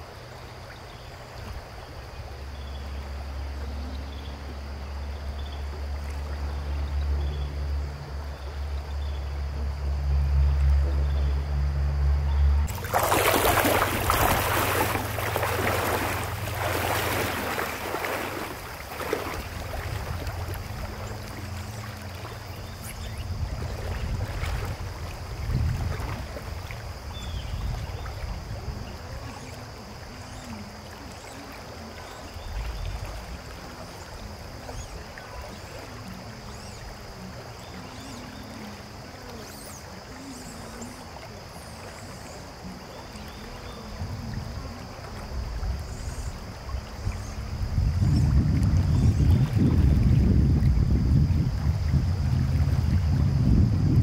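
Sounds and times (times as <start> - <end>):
river flowing over stones: 12.6 - 50.5.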